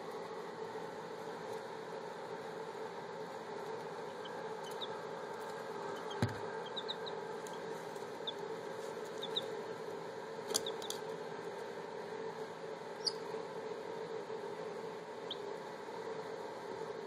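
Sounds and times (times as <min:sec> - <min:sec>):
steady background hum: 0:00.0 - 0:17.0
baby chicks peeping: 0:03.6 - 0:09.8, 0:10.4 - 0:11.1, 0:12.9 - 0:13.4, 0:15.1 - 0:15.6
thump: 0:06.2 - 0:06.4.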